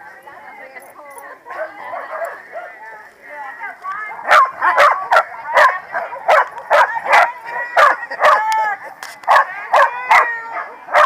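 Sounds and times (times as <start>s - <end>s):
dogs barking: 1.4s - 2.8s, 4.2s - 8.4s, 9.3s - 11.0s.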